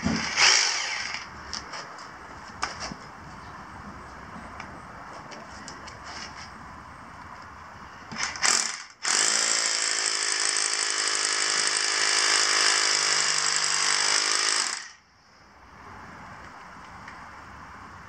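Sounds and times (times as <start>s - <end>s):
hammer drill boring into pavement: 0.2s - 1.3s, 8.2s - 15.0s.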